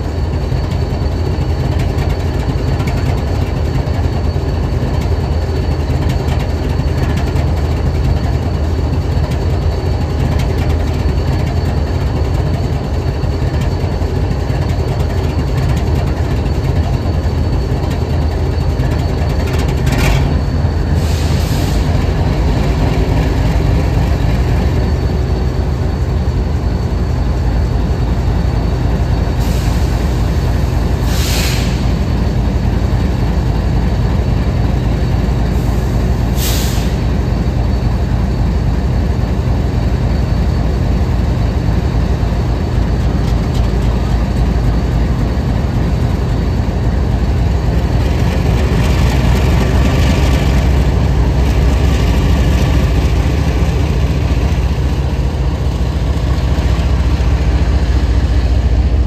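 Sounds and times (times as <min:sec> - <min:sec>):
locomotive engine idling: 0:00.0 - 0:59.0
brief hisses: 0:31.0 - 0:31.9.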